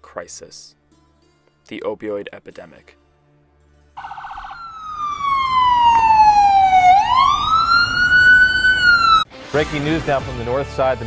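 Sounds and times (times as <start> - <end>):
ambulance siren wailing: 4.0 - 9.3.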